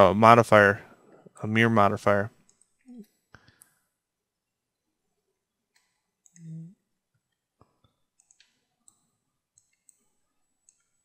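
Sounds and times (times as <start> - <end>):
person humming briefly: 6.4 - 6.8
mouse and keyboard clicks: 8.2 - 11.0.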